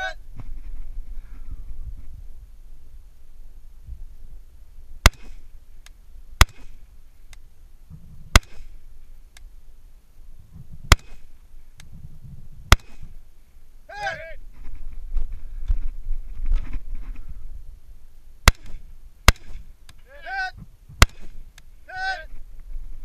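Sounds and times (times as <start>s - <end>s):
rifle shots: 5.0s - 5.4s, 6.4s - 6.8s, 8.3s - 8.8s, 10.9s - 11.3s, 12.7s - 13.1s, 18.4s - 19.7s, 21.0s - 21.4s.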